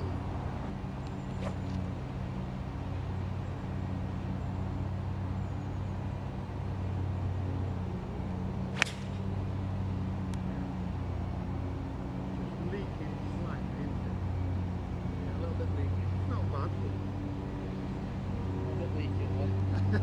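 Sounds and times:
golf club striking ball: 0:08.7 - 0:09.3.

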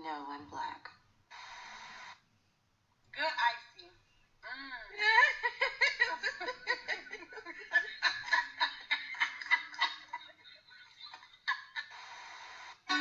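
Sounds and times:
high-pitched giggling: 0:04.9 - 0:12.0.

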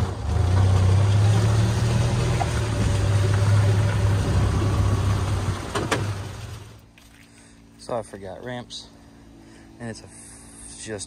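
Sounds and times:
golf cart engine running: 0:00.0 - 0:06.9.

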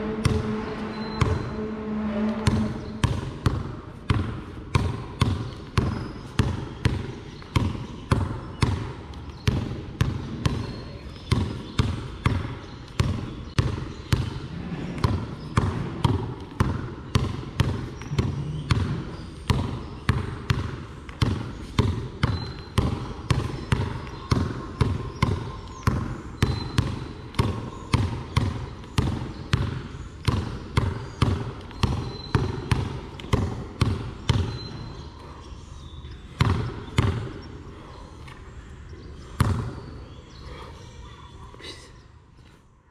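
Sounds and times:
basketball bouncing on concrete: 0:02.5 - 0:34.9, 0:36.4 - 0:37.4, 0:39.4 - 0:39.9.

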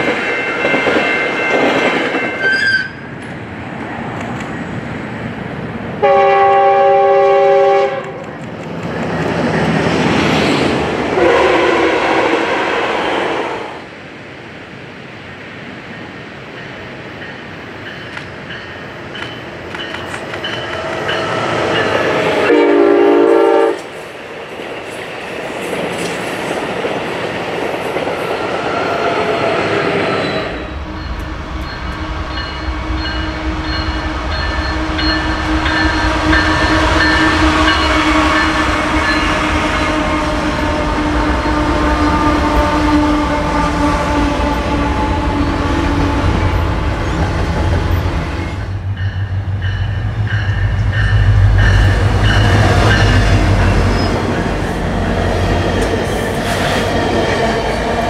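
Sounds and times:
railcars rolling by: 0:00.0 - 0:58.0
train horn: 0:06.0 - 0:08.3, 0:11.2 - 0:13.8, 0:22.4 - 0:23.9, 0:30.3 - 0:46.8
diesel locomotive engine rumble: 0:13.8 - 0:58.0.

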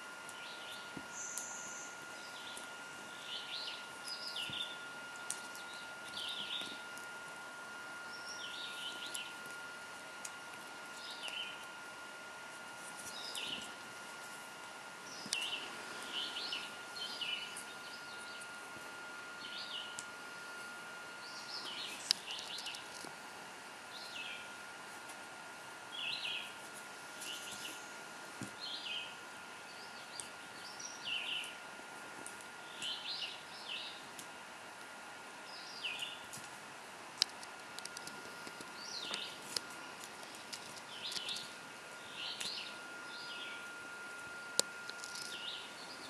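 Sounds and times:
faint steady whine: 0:00.0 - 0:46.0
small bird chirping: 0:00.3 - 0:06.8, 0:08.0 - 0:09.4, 0:13.0 - 0:13.7, 0:15.0 - 0:18.6, 0:21.2 - 0:23.0, 0:25.9 - 0:26.6, 0:38.7 - 0:39.5, 0:40.2 - 0:43.7, 0:44.9 - 0:46.0.

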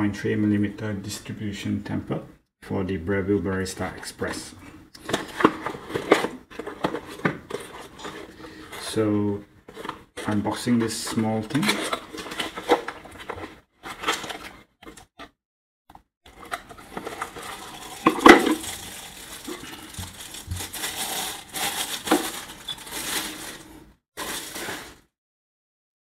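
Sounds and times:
cardboard and plastic rustling: 0:05.0 - 0:14.7, 0:16.3 - 0:25.1.

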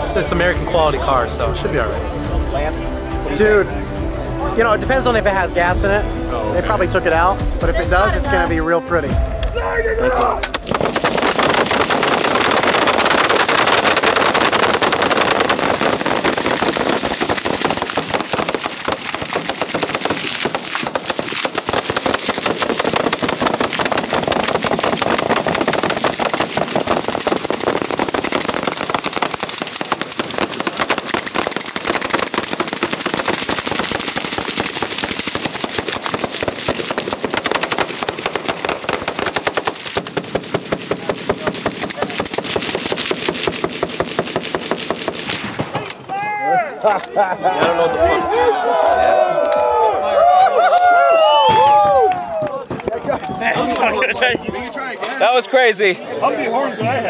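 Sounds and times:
many guns firing: 0:10.5 - 0:46.0.

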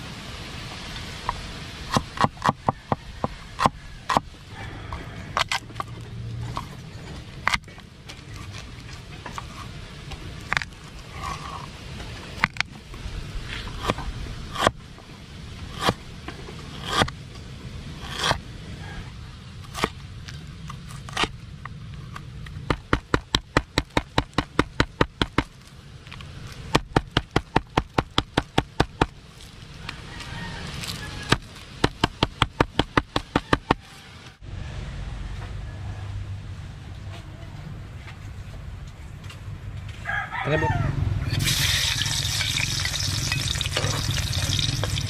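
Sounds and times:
cleaver chopping on wooden board: 0:01.9 - 0:04.3, 0:22.6 - 0:25.6, 0:26.7 - 0:29.2, 0:31.3 - 0:33.8
stone pounding peppercorns: 0:22.6 - 0:25.6, 0:26.5 - 0:29.2, 0:31.3 - 0:33.8, 0:41.4 - 0:45.0.

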